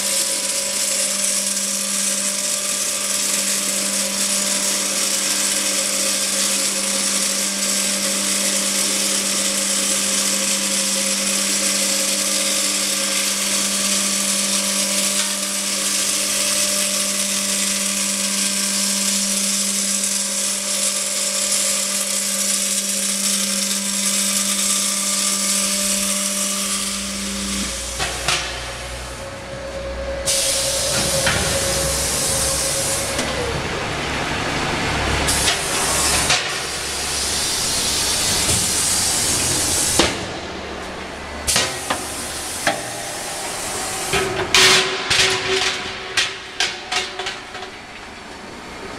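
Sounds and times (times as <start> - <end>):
welding arc hiss and crackle: 0.0 - 48.4
machine hum: 0.0 - 48.9
low rumble: 27.2 - 35.3.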